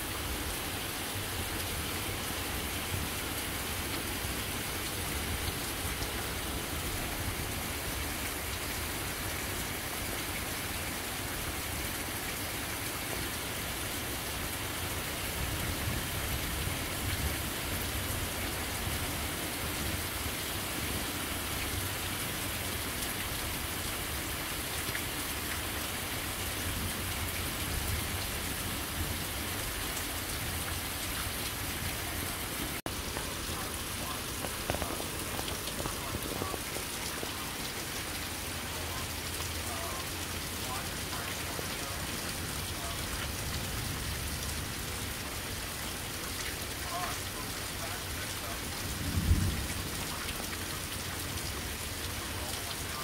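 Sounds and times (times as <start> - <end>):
steady rain hiss: 0.0 - 53.0.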